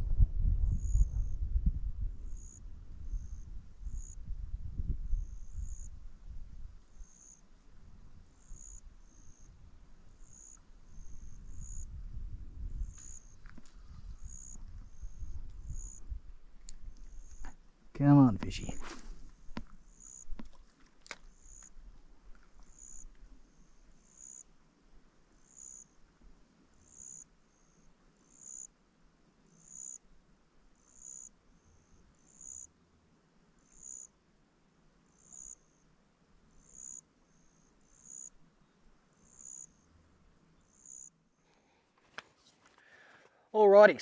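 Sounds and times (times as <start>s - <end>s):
cricket chirping: 0.7s - 1.5s, 2.2s - 24.6s, 25.3s - 26.1s, 26.7s - 32.8s, 33.5s - 34.2s, 35.0s - 41.8s.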